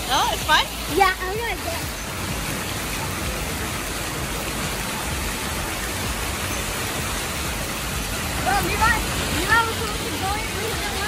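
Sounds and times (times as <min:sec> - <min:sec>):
water rushing down a slide: 0:00.0 - 0:11.0
water splashing: 0:00.0 - 0:11.0.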